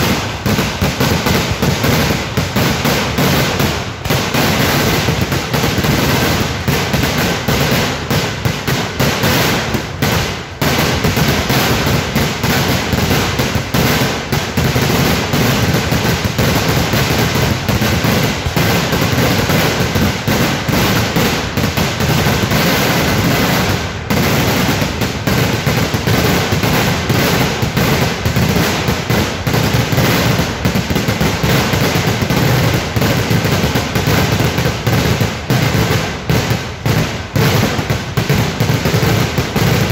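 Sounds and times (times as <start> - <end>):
firecracker bangs and crackling: 0.0 - 39.9.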